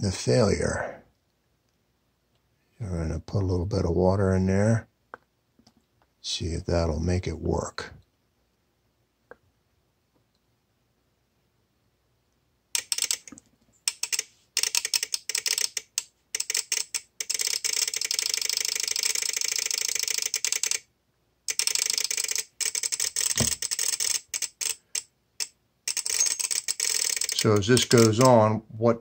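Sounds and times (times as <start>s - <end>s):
relay clicking rapidly: 25.9s - 28.4s.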